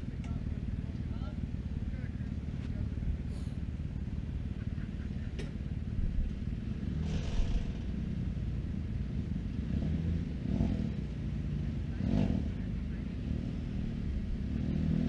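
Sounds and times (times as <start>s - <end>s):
utv engine idling: 0.0s - 14.6s.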